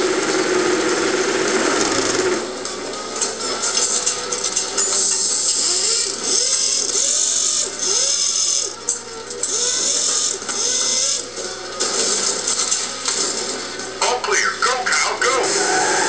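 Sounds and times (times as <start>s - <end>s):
race car engine effects from speaker: 14.2s - 16.0s.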